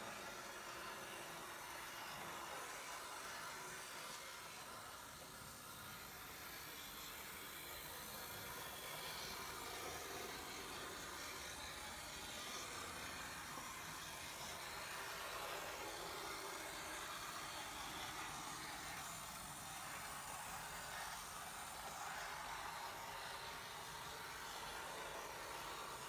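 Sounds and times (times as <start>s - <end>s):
model locomotive whirring: 0.0s - 26.0s.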